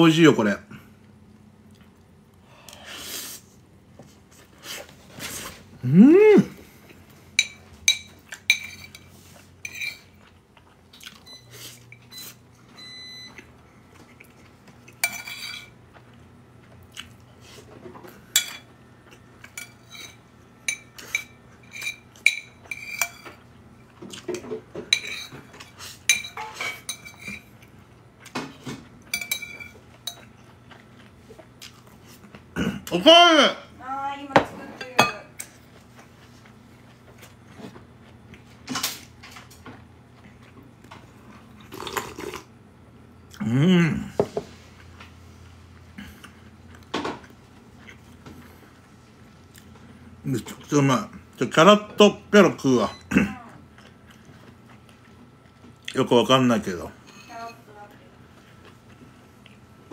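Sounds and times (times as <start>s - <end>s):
person humming: 5.8s - 6.7s, 43.4s - 44.2s
spoon clinking against ceramic bowl: 29.1s - 30.3s.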